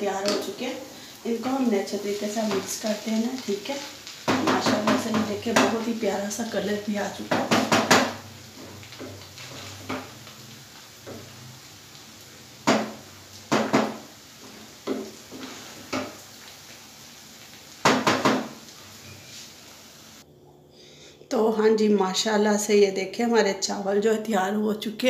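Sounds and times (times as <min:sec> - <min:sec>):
wooden spatula scraping frying pan: 0:01.3 - 0:06.2, 0:07.1 - 0:11.5, 0:12.6 - 0:16.8, 0:17.8 - 0:19.9.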